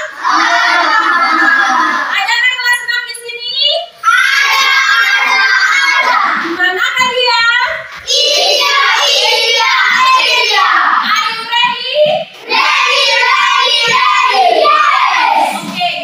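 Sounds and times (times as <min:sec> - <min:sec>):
children singing together: 0:00.0 - 0:02.1, 0:04.0 - 0:06.6, 0:08.0 - 0:16.0.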